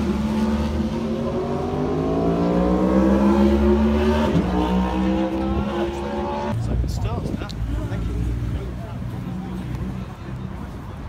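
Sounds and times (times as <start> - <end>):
vehicle engine accelerating: 0.0 - 6.8.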